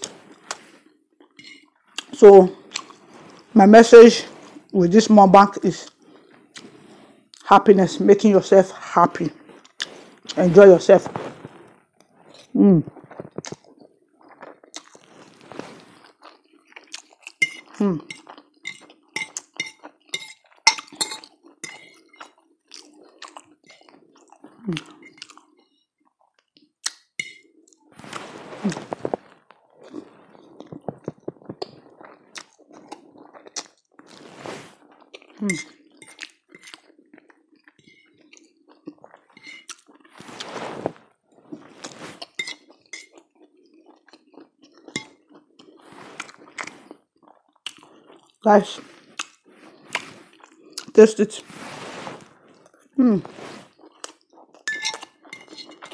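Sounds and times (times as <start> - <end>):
wet chewing: 0.0 - 3.5, 9.3 - 10.4, 11.4 - 40.5, 41.3 - 51.0, 52.4 - 55.9
fork clinking on ceramic plate: 17.4 - 22.0, 27.2 - 27.4, 42.4 - 43.1, 54.7 - 55.9.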